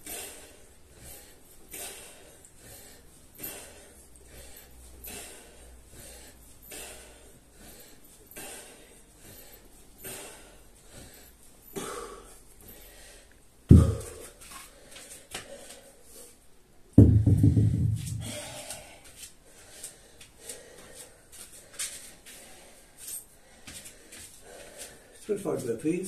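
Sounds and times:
man breathing out hard: 0.0s - 11.2s, 11.8s - 16.0s, 18.1s - 22.8s
heavy thuds on rubber mat: 13.7s - 14.3s, 17.0s - 18.3s.

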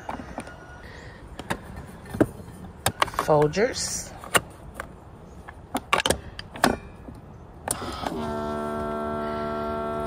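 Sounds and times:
coffee machine electric hum: 7.8s - 10.0s.

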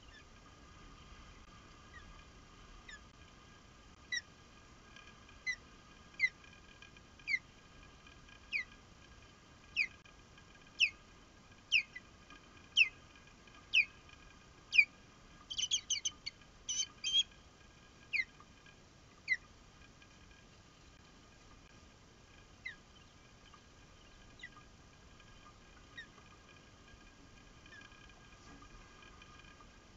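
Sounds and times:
osprey whistled chirps: 11.7s - 12.0s, 12.8s - 13.0s, 13.7s - 13.9s, 15.5s - 17.3s.

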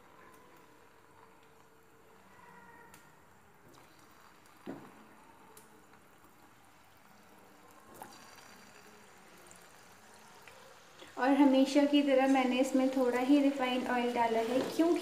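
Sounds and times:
hot oil sizzling: 3.5s - 15.0s.

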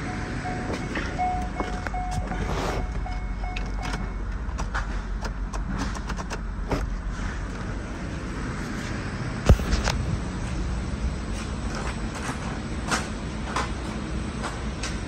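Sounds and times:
dashboard warning chime: 0.0s - 4.4s
car engine idling: 0.0s - 14.5s.

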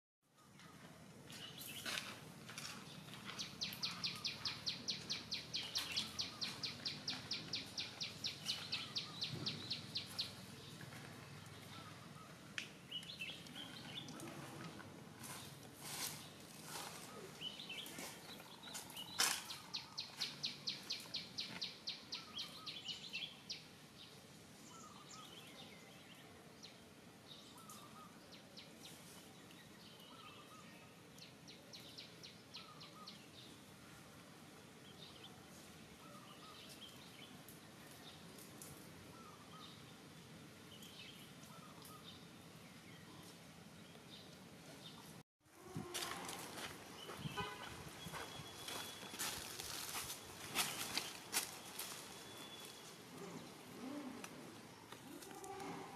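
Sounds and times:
birds chirping: 0.4s - 34.0s, 46.5s - 55.6s.

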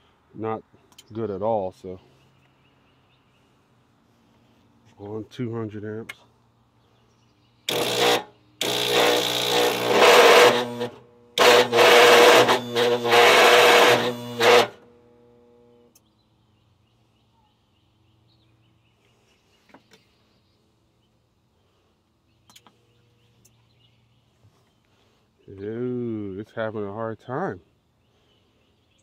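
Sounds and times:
starter cranking engine: 7.7s - 14.8s.

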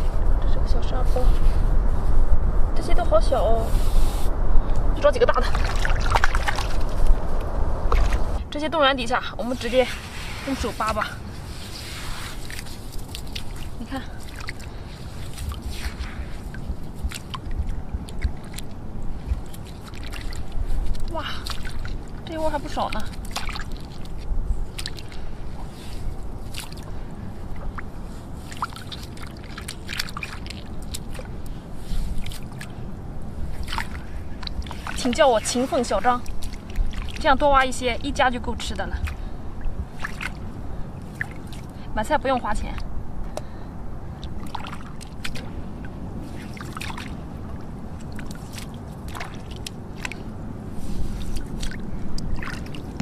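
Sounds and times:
wind on microphone: 0.0s - 53.0s
water sloshing and dripping: 4.6s - 53.0s
hands digging wet sand: 9.4s - 14.0s.

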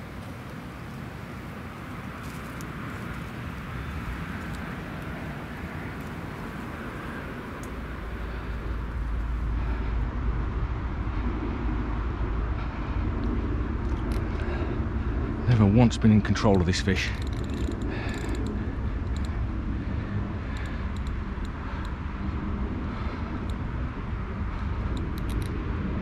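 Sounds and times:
wind buffeting microphone: 0.0s - 26.0s
low rumble: 2.1s - 16.6s.

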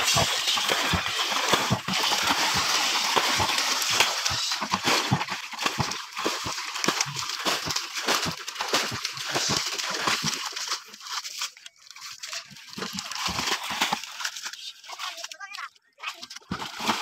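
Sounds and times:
hands sloshing through water: 0.0s - 15.4s
water pouring from bucket: 0.0s - 17.0s.

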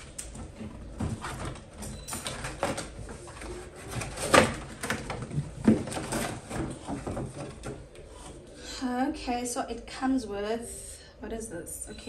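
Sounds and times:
cardboard scraping and rustling: 0.2s - 8.5s.

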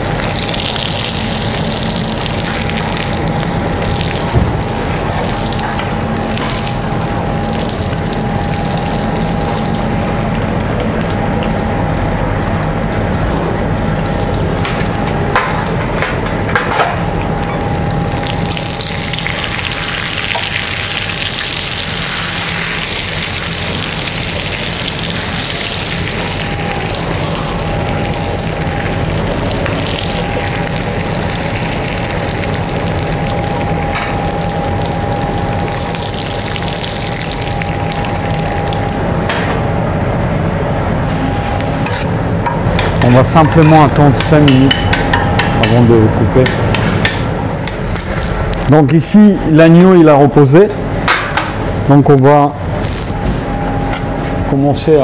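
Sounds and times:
meat sizzling in a frying pan: 0.0s - 11.8s, 17.4s - 39.0s
kitchen hum: 0.0s - 55.0s.

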